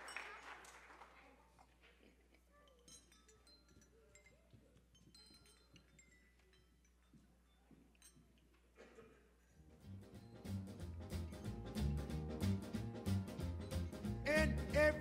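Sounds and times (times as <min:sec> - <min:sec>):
audience applause: 0:00.0 - 0:01.5
faint high clinks: 0:01.9 - 0:10.6.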